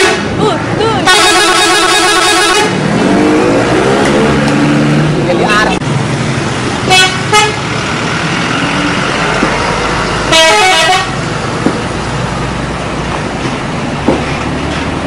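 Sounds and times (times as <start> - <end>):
multi-tone bus horn: 0.0 - 0.4, 1.0 - 2.9, 6.8 - 7.6, 10.3 - 11.2
traffic and engine noise: 0.0 - 15.0.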